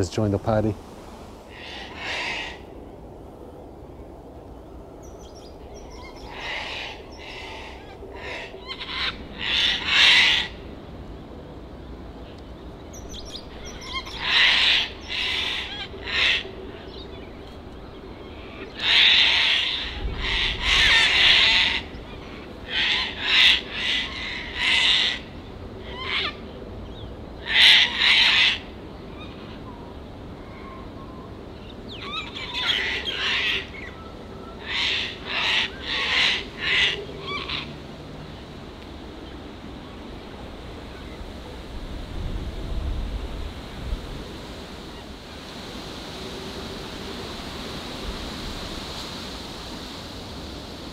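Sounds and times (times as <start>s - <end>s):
cockatoos screeching: 1.5s - 2.7s, 5.8s - 10.7s, 13.1s - 17.2s, 18.2s - 26.4s, 27.4s - 29.6s, 32.0s - 34.0s, 34.6s - 37.7s.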